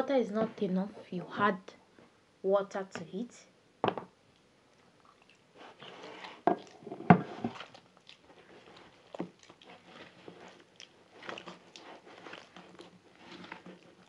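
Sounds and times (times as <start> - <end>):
hand squelching wet batter: 7.5 - 14.0.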